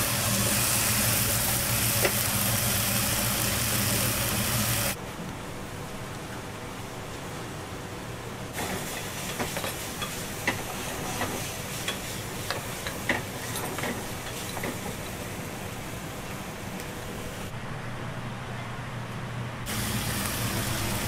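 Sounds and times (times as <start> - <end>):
hiss: 0.0 - 5.0, 8.6 - 15.0, 19.7 - 21.0
kitchen hum: 0.0 - 5.0, 8.5 - 17.6, 19.7 - 21.0.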